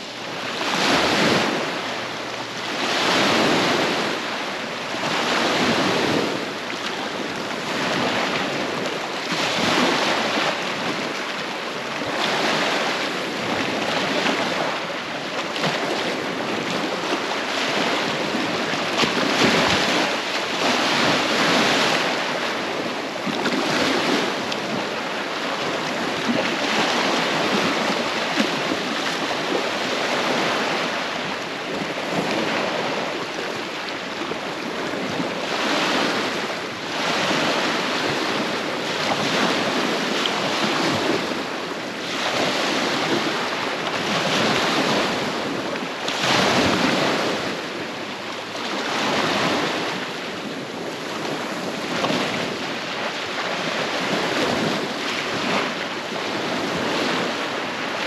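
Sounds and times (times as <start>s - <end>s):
small waves lapping on shore: 0.0s - 58.0s.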